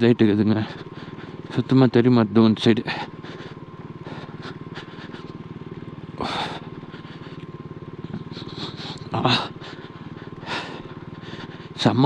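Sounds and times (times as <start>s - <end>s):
motorcycle engine at low revs: 0.0s - 12.0s.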